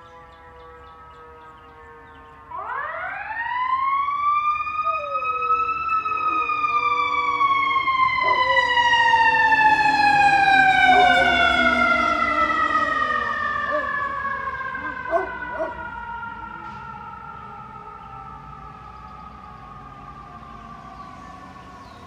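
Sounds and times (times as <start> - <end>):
dog howling: 4.8 - 7.4, 8.2 - 9.2, 10.5 - 14.1, 14.7 - 16.0.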